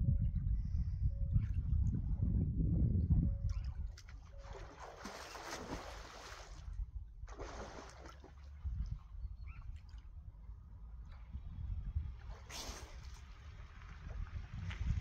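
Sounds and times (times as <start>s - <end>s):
steady low rumble: 0.0s - 3.6s, 10.0s - 15.0s
water splashing: 3.5s - 9.1s, 12.0s - 15.0s.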